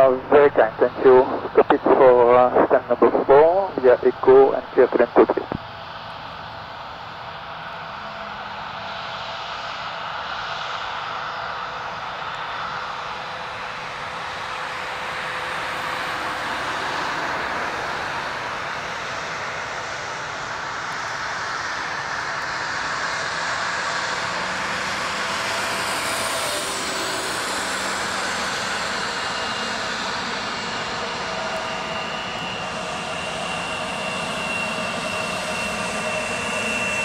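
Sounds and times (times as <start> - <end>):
jet engine noise: 0.0 - 37.0.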